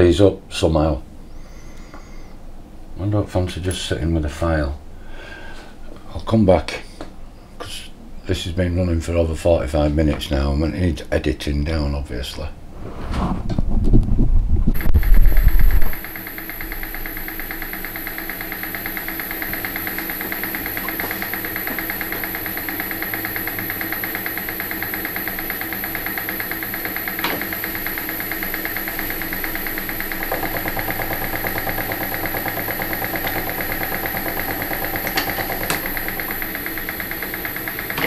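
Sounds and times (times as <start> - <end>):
machine tool cutting metal: 14.8 - 38.0
sharp clicks: 14.8 - 38.0.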